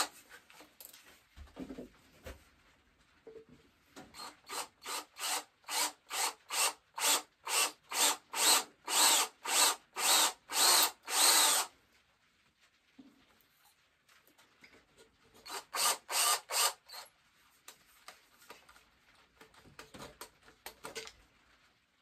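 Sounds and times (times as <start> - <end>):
cordless drill bursts: 4.1 - 11.7, 15.4 - 17.0.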